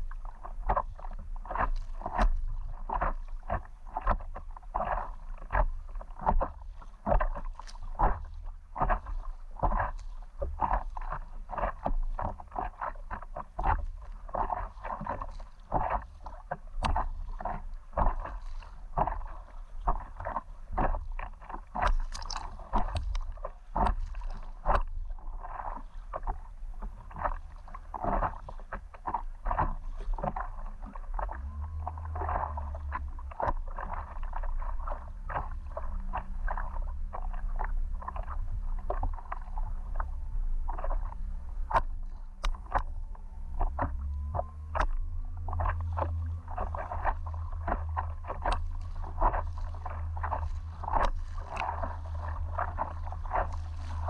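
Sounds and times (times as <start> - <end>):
low steady rumble: 0.0 - 54.0
paddle splashing water: 0.0 - 54.0.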